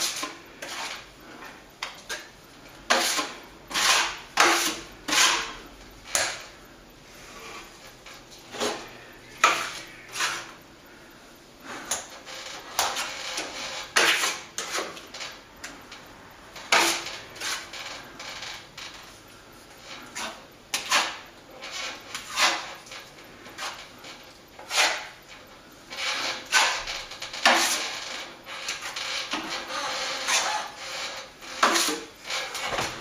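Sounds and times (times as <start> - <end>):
scraper knife scraping cement: 0.0 - 1.1, 2.9 - 6.5, 8.5 - 10.6, 11.7 - 15.4, 16.7 - 17.7, 20.0 - 23.9, 24.6 - 25.2, 26.0 - 33.0.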